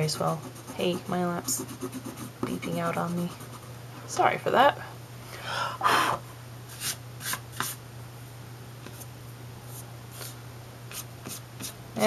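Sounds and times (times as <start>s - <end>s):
eraser rubbing on paper: 0.0s - 3.7s
steady low hum: 0.0s - 12.0s.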